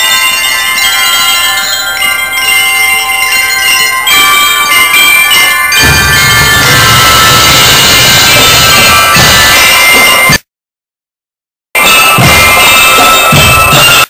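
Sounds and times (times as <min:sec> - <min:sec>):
bell lyres playing a melody: 0:00.0 - 0:08.7
drums: 0:05.6 - 0:10.4, 0:11.8 - 0:14.0.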